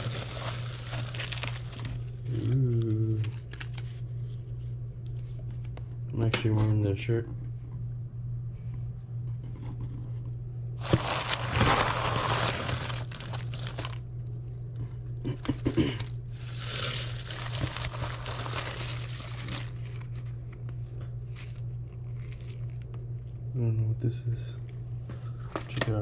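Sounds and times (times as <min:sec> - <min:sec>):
shredded paper and plastic rustling: 0:00.0 - 0:03.9, 0:10.8 - 0:14.0, 0:15.3 - 0:20.2.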